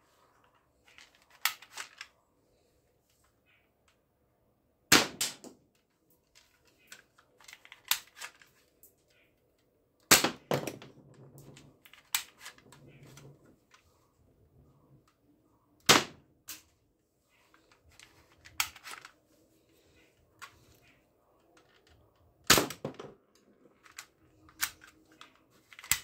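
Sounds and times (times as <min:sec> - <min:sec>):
toy pistol snapping and clacking: 0:01.2 - 0:02.1, 0:06.9 - 0:08.4, 0:11.9 - 0:13.3, 0:23.8 - 0:26.0
handling clicks and rattles: 0:17.4 - 0:26.0.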